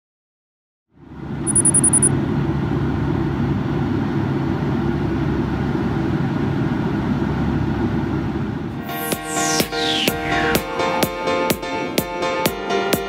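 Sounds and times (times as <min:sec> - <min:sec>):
airliner cabin engine noise: 0:01.0 - 0:12.0
high-pitched pulsing tone: 0:01.5 - 0:02.1, 0:08.8 - 0:11.2.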